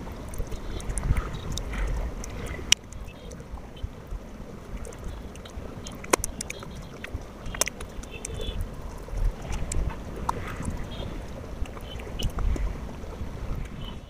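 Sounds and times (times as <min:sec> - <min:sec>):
wet mouth clicks: 0:07.5 - 0:08.6.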